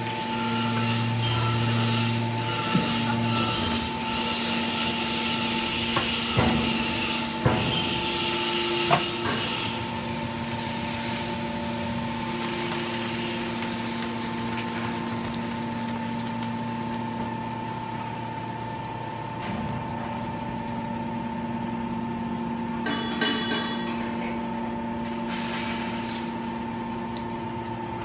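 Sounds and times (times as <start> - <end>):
hydraulic machine humming: 0.0 - 28.0
sharp metal clanks: 22.8 - 24.0
hydraulic hiss: 25.0 - 26.2.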